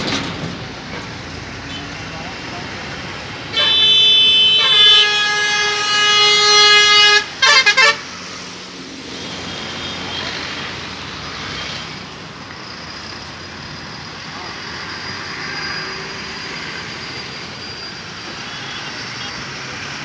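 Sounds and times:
truck traffic noise: 0:00.0 - 0:20.0
truck horn blasts: 0:03.5 - 0:08.2.

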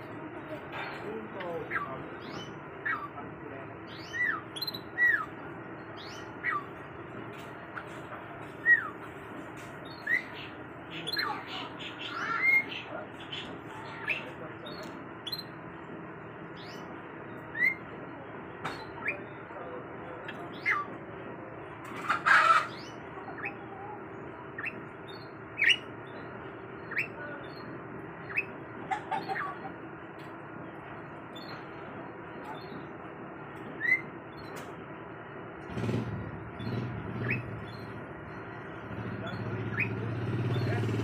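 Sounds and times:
canary chirping: 0:01.4 - 0:09.2, 0:09.8 - 0:15.6, 0:16.6 - 0:17.9, 0:18.7 - 0:19.6, 0:20.2 - 0:21.0, 0:22.0 - 0:23.7, 0:24.5 - 0:29.7, 0:31.3 - 0:31.7, 0:33.7 - 0:34.6, 0:36.6 - 0:38.5, 0:39.2 - 0:40.9.

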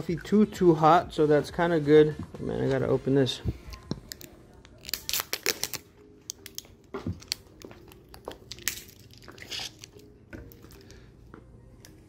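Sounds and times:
plastic crinkling and clicking: 0:03.7 - 0:10.9
plastic seal tearing: 0:04.2 - 0:05.8.

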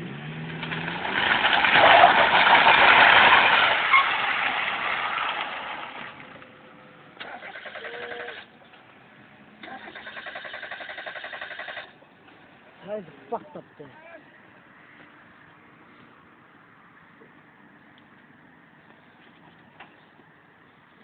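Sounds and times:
car sliding on scraping trays: 0:00.0 - 0:06.3.

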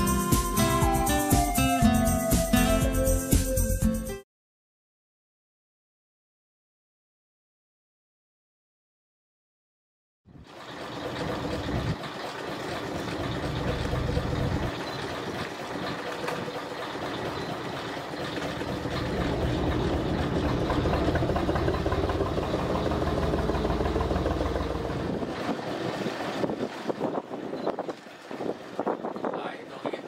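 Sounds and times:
boat engine rumbling: 0:10.3 - 0:30.0.

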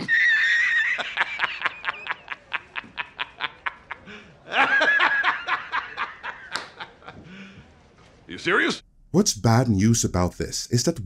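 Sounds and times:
man laughing hard: 0:00.0 - 0:07.2.

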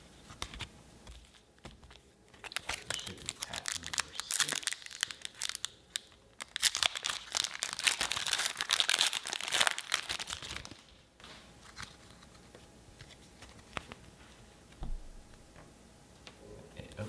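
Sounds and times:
foil wrapper crinkling and tearing: 0:01.2 - 0:10.9.

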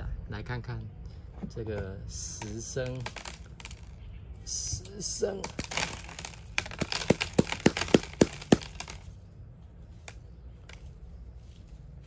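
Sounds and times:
plastic pot clicking and knocking: 0:06.6 - 0:09.0.

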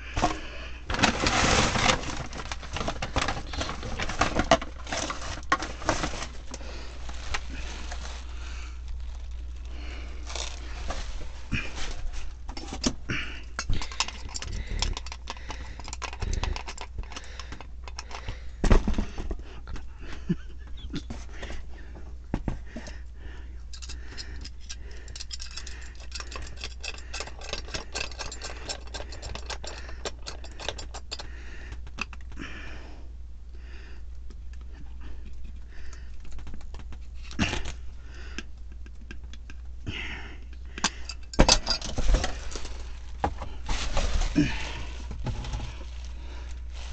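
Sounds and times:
steady low hum: 0:00.0 - 0:46.9
metal wrench clinking and scraping: 0:23.7 - 0:31.3, 0:40.8 - 0:42.6.

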